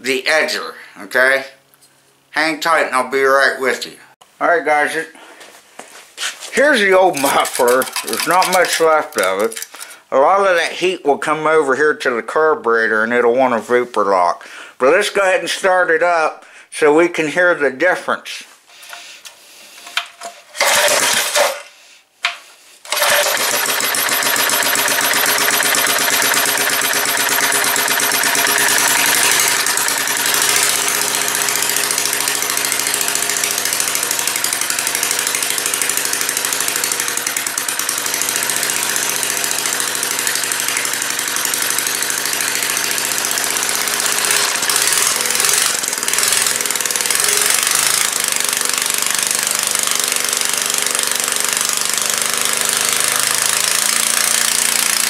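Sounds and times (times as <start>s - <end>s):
rattling exhaust: 6.6s - 10.0s, 22.9s - 49.9s
small engine starting and running: 6.7s - 10.1s, 19.7s - 21.7s, 22.8s - 55.0s.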